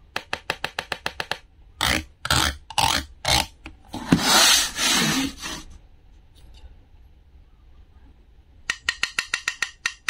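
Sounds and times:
rod scraping plastic basket: 0:03.9 - 0:05.7.

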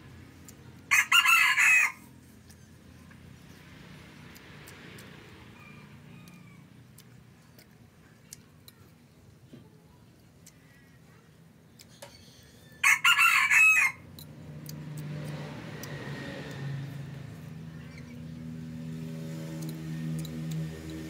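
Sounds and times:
rooster crowing: 0:00.9 - 0:02.1, 0:05.4 - 0:06.8, 0:12.4 - 0:14.1.

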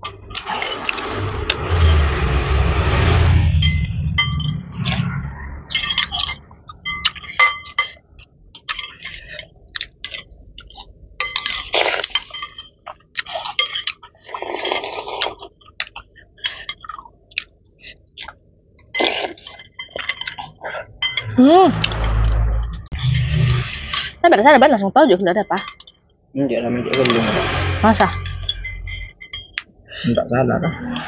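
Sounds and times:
cutlery clinking on glass bowls: 0:05.7 - 0:17.0, 0:18.2 - 0:21.4, 0:25.4 - 0:26.1, 0:26.8 - 0:27.5, 0:28.1 - 0:29.7, 0:30.5 - 0:31.0
noodle slurping: 0:14.2 - 0:15.5.

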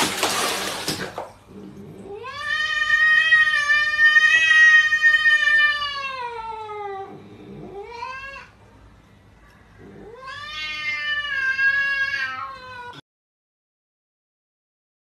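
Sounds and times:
cat yowling: 0:02.1 - 0:08.6, 0:09.8 - 0:13.0.

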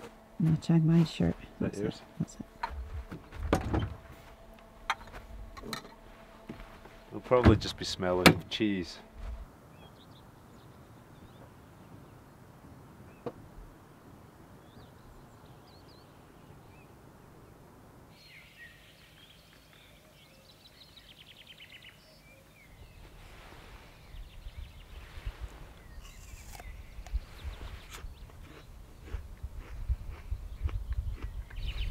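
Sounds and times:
birds chirping: 0:00.0 - 0:13.6, 0:14.5 - 0:31.9
low steady rumble: 0:00.0 - 0:15.3
low thumps and knocks: 0:02.6 - 0:04.2, 0:04.8 - 0:08.5.

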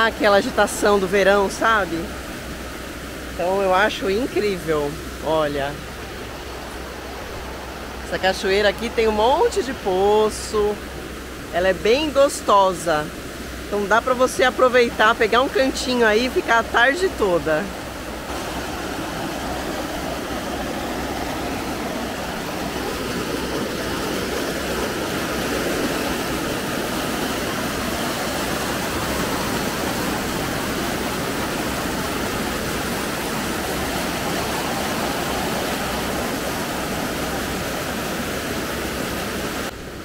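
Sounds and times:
waterfall splashing into pool: 0:18.3 - 0:39.7.

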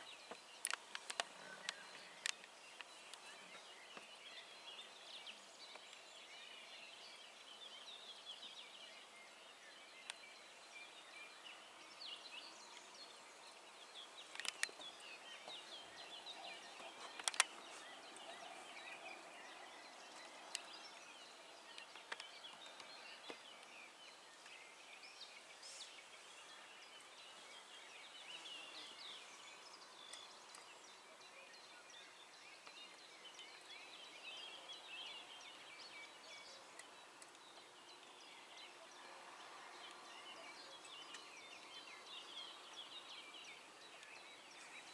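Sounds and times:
songbirds chirping: 0:00.0 - 0:44.9
sharp clicks: 0:00.6 - 0:03.2, 0:14.3 - 0:14.8, 0:17.1 - 0:17.6.

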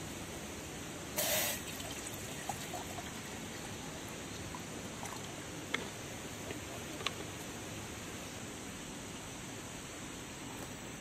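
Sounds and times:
brief loud hiss: 0:01.2 - 0:01.8.

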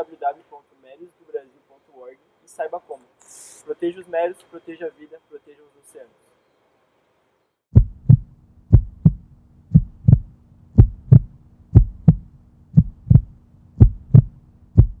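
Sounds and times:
faint steady hum: 0:00.0 - 0:15.0
heartbeat thumps: 0:07.7 - 0:15.0.

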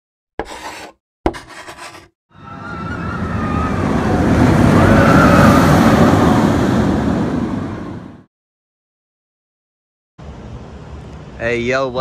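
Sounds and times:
rushing rumble: 0:02.5 - 0:08.3.

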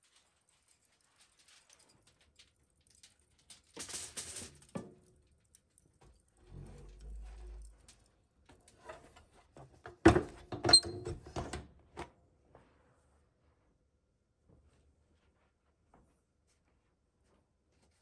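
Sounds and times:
objects knocking and clunking: 0:03.8 - 0:12.1.

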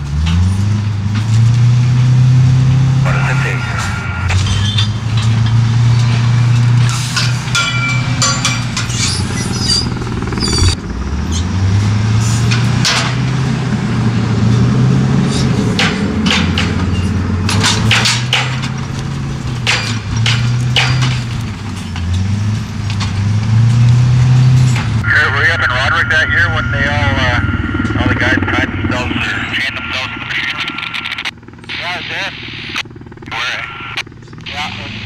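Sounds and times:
heavy engine revving: 0:00.0 - 0:32.0, 0:34.1 - 0:35.0
wood and metal knocks and clanks: 0:15.7 - 0:23.8.

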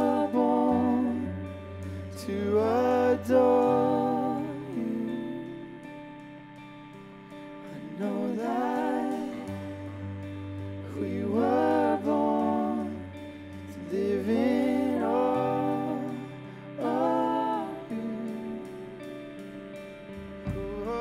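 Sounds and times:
man singing worship song: 0:00.0 - 0:05.9, 0:07.7 - 0:09.8, 0:10.9 - 0:19.0, 0:20.6 - 0:21.0
electric guitar: 0:00.0 - 0:21.0
low sustained note: 0:00.0 - 0:21.0.

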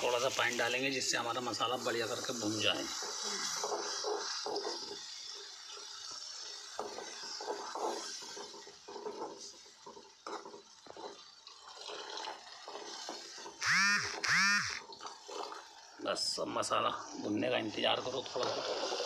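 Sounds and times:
water pouring into frying pan: 0:00.0 - 0:13.6, 0:14.8 - 0:19.0
spoon stirring and scraping pan: 0:01.7 - 0:13.6.

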